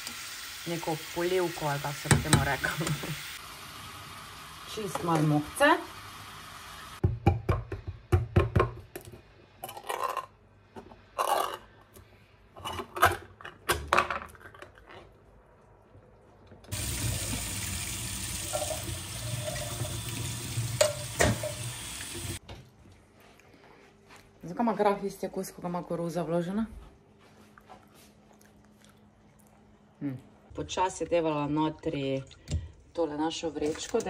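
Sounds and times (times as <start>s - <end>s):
tap water running into strainer: 16.7s - 22.4s.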